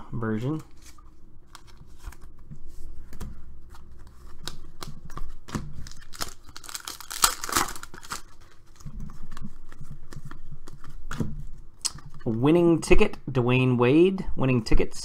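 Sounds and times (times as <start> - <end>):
cards being handled: 0.4 - 12.4
plastic wrapper tearing and crinkling: 4.4 - 8.9.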